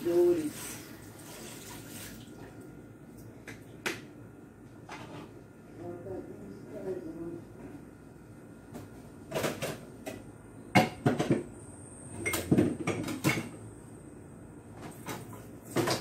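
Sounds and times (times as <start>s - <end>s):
kitchen items clattering: 9.3s - 10.2s, 12.2s - 13.6s, 14.8s - 16.0s.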